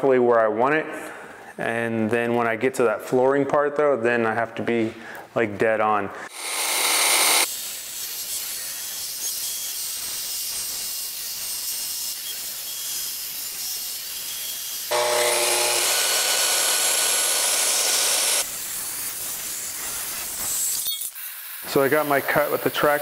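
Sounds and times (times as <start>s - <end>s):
circular saw whine cutting wood: 6.3s - 7.5s, 14.9s - 18.5s
dust extractor hissing: 6.3s - 7.5s, 14.9s - 18.5s.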